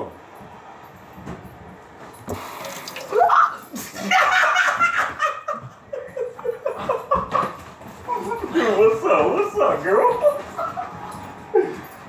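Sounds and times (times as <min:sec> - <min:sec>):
water running from faucet: 0:02.3 - 0:03.8
person laughing: 0:03.1 - 0:07.4.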